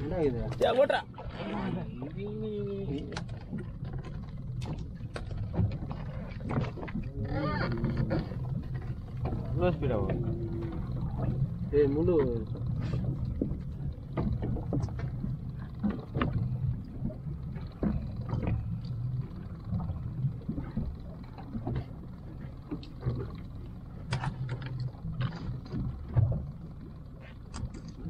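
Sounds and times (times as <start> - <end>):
boat motor humming: 0.0 - 28.0.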